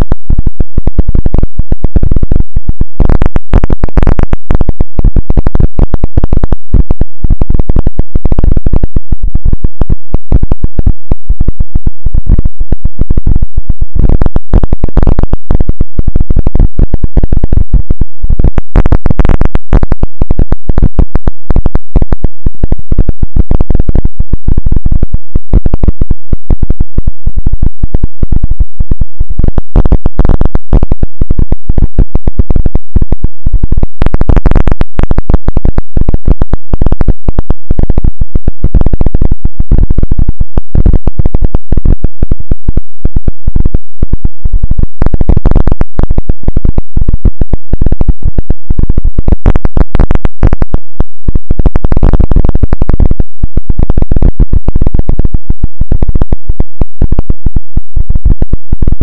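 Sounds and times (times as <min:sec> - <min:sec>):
distorted crackling noise: 0:00.0 - 0:59.0.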